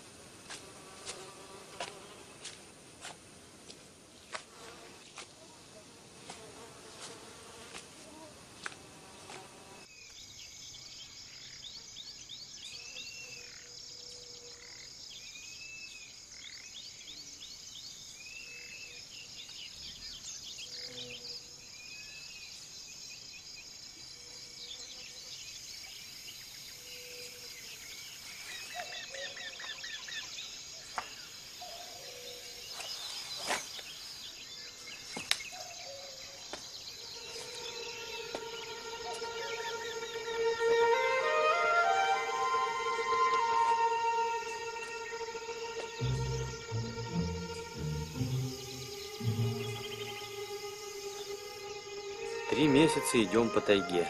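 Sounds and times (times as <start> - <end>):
insects buzzing: 0.0 - 54.0
birds chorus: 24.0 - 40.4, 48.1 - 54.0
lower bird call: 37.2 - 54.0.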